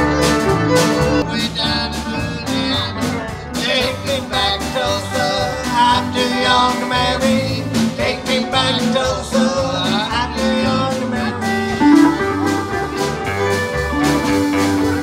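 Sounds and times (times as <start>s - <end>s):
live band playing guitar music: 0.0s - 15.0s
gliding guitar notes: 11.4s - 15.0s.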